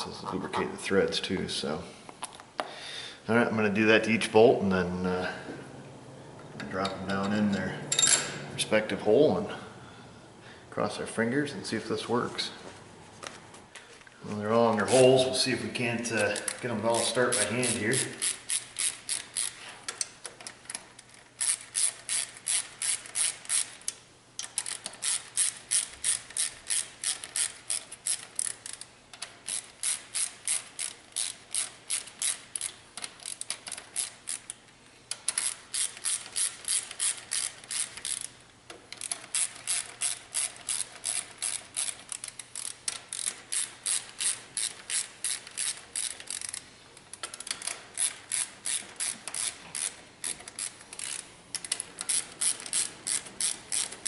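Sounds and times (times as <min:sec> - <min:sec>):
hand ratchet clicking: 0:16.0 - 0:54.0.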